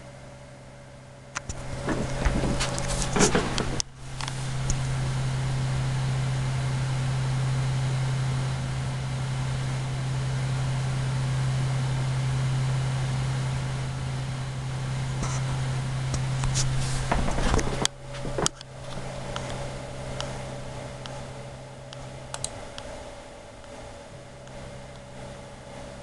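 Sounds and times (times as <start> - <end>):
low buzzing synth tone: 0.0 - 26.0
clicks and rustles: 1.4 - 4.8, 16.2 - 19.6
hissy wash: 15.0 - 26.0.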